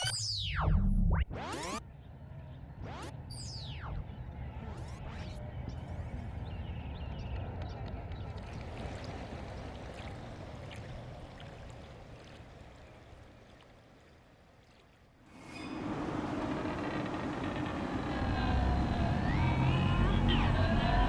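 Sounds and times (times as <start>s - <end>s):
river water running and lapping: 8.1s - 21.0s.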